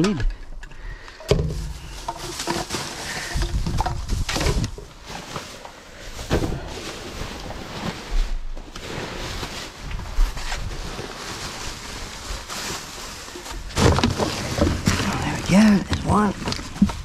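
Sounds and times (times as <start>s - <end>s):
items knocking and clattering: 0.0s - 5.6s, 13.4s - 17.0s
rubbish rustling and scraping: 1.4s - 17.0s.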